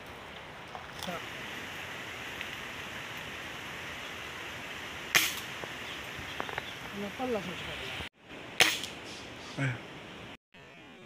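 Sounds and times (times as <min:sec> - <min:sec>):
air rifle shots: 0:05.1 - 0:05.5.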